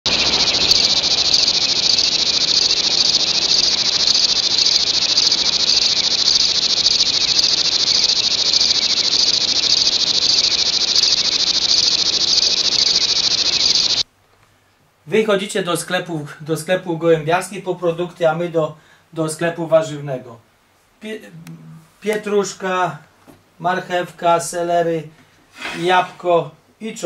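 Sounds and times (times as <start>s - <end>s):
insects chirring: 0.0s - 14.1s.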